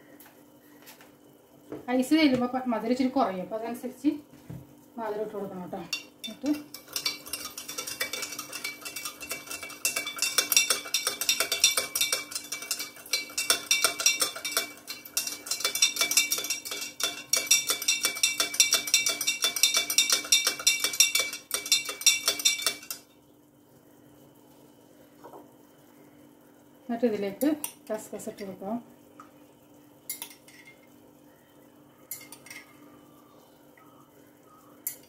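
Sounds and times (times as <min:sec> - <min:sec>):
spoon clinking in glass jug: 0:05.9 - 0:23.1, 0:30.1 - 0:30.8, 0:32.1 - 0:32.7.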